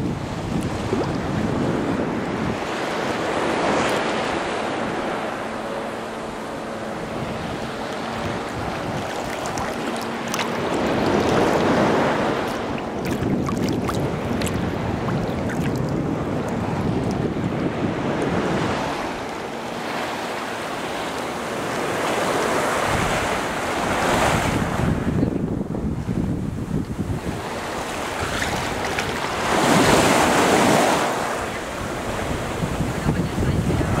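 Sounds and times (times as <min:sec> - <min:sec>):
small waves breaking on sand: 0:00.0 - 0:25.2, 0:25.9 - 0:34.0
seawater sloshing and lapping: 0:02.9 - 0:17.3, 0:27.6 - 0:32.2
small sharp splashes: 0:07.9 - 0:15.9.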